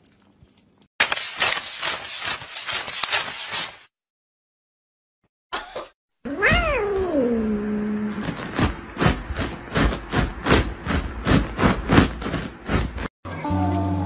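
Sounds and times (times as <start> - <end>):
cat meowing: 6.3 - 7.4.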